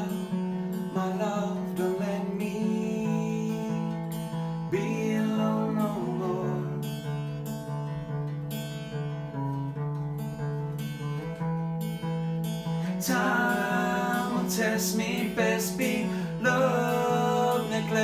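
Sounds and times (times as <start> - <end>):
acoustic guitar strumming: 0.0 - 18.0.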